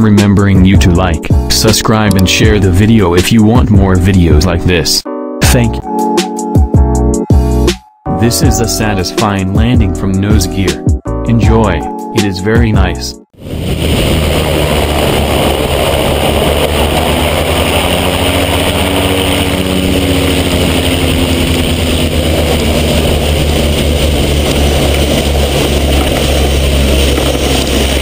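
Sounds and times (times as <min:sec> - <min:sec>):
heavy wind noise: 0:13.4 - 0:28.0
propeller aircraft engine running: 0:13.4 - 0:28.0
wheel rolling over grass: 0:13.5 - 0:28.0.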